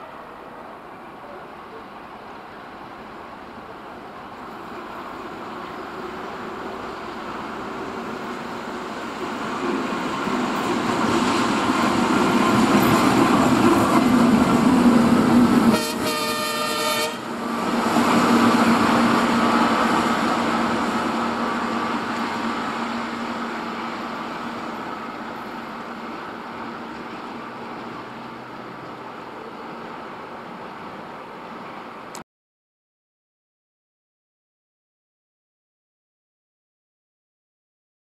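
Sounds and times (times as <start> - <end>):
diesel locomotive engine passing: 0.0 - 32.2
locomotive horn blast: 15.7 - 17.3.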